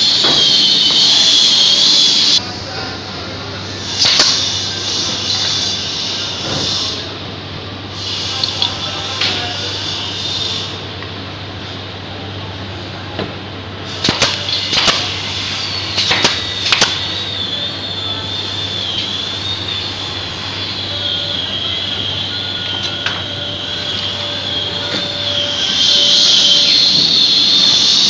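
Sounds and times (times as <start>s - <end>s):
high-pitched whine: 0.0s - 7.1s, 13.9s - 28.0s
nail gun shots: 4.0s - 4.4s, 14.0s - 15.1s, 16.0s - 17.0s.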